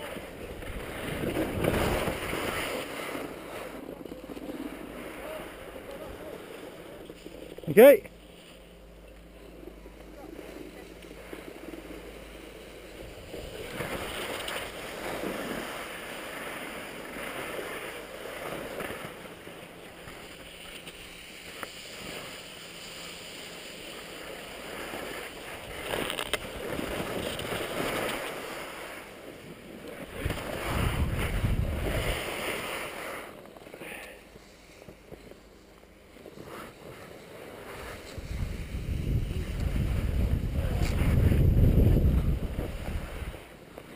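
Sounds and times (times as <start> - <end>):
skis scraping over crusted snow: 0.0 - 8.7, 9.4 - 43.9
wind buffeting microphone: 30.1 - 32.3, 38.1 - 43.4.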